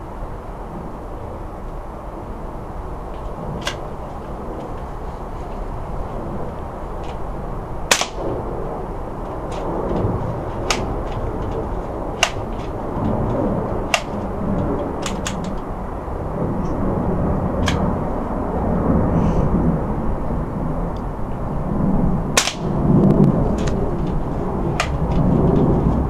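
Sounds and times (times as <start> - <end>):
air rifle clicks: 3.2 - 4.9, 7.9 - 8.5, 9.2 - 15.7, 17.6 - 17.9, 22.4 - 22.8, 24.8 - 25.7
air rifle shot: 7.9 - 8.5, 22.4 - 22.8.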